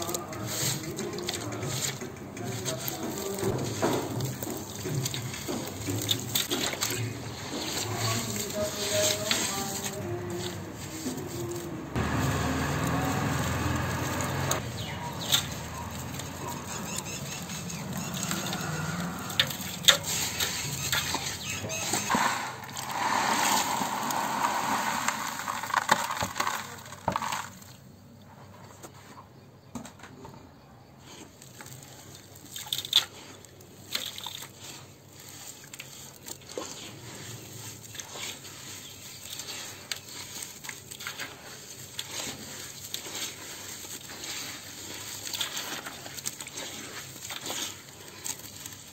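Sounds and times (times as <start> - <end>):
gritty clicks and crunches: 0.0 - 27.9
wet sand squeezed in water: 2.5 - 26.6
sand dropped into water splashing: 21.9 - 27.8.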